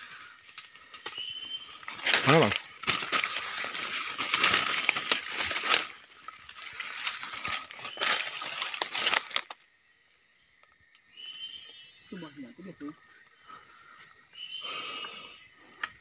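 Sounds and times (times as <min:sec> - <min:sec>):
footsteps crunching dry leaves: 0:01.8 - 0:09.6.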